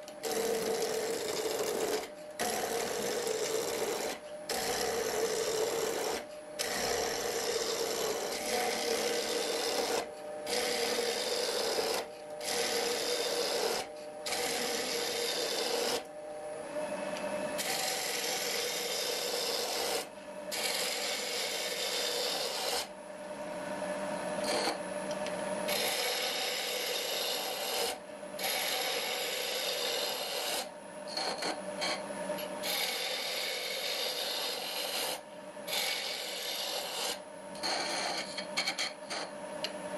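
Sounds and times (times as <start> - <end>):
wood lathe gouge shaving wood: 0.0 - 16.1, 17.6 - 22.9, 25.7 - 30.7, 32.6 - 37.2.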